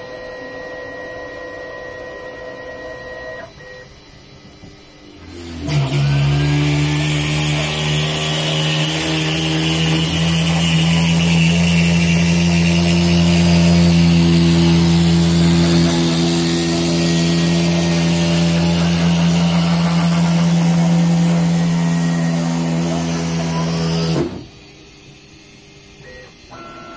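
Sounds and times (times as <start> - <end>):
spindle motor whining: 5.2 - 24.6.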